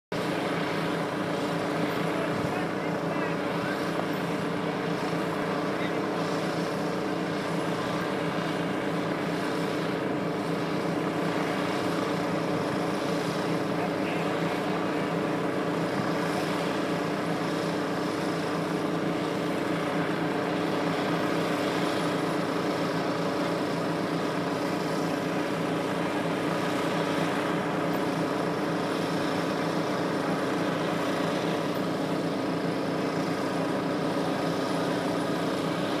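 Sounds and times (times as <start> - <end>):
small engine running steadily: 0.0 - 36.0.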